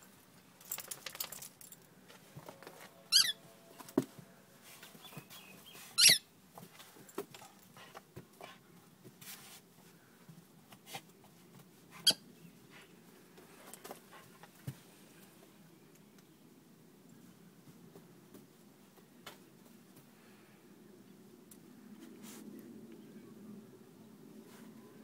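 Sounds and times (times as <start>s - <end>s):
dog squeaking: 3.1s - 3.4s, 6.0s - 6.2s.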